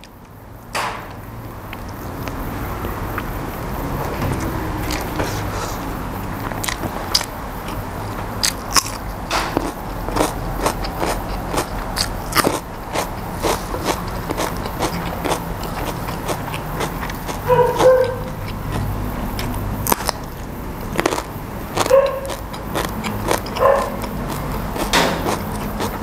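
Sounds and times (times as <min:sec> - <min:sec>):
wet chewing: 0:08.4 - 0:26.0.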